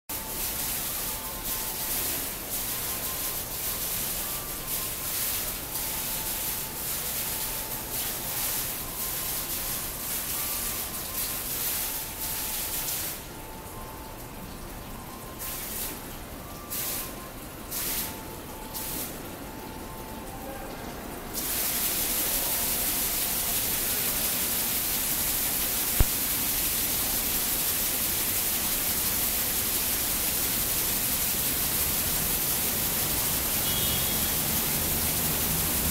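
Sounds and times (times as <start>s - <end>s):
fountain water splashing into basin: 0.1s - 35.9s.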